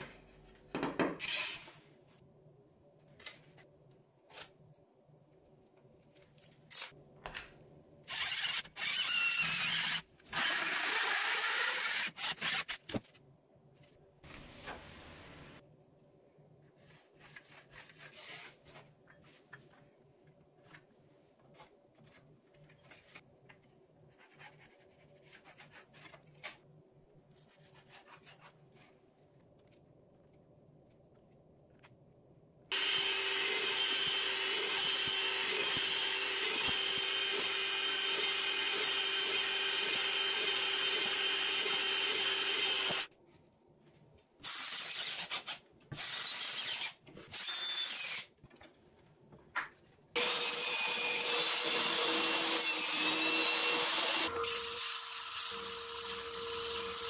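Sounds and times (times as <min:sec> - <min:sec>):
pencil scratching on wood: 0:24.1 - 0:26.1
loud power tool running: 0:32.7 - 0:43.1, 0:50.2 - 0:54.9.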